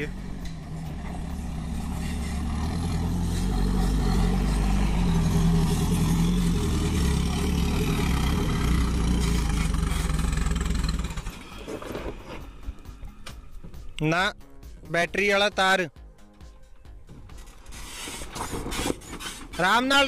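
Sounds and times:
vehicle engine droning: 0.0 - 14.0.

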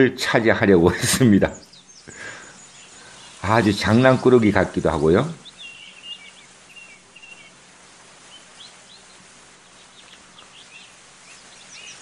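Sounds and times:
small birds chirping: 0.0 - 12.0
steady low hiss: 0.0 - 12.0.

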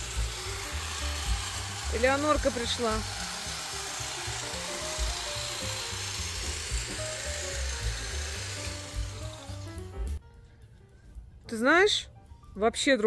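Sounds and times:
hedge trimmer cutting bushes: 0.0 - 10.2
slow background music: 0.0 - 13.0.

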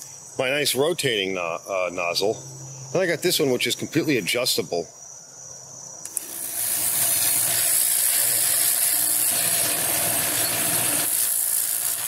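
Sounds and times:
machine humming: 6.1 - 12.0
pressure washer water jet hiss: 6.1 - 12.0.

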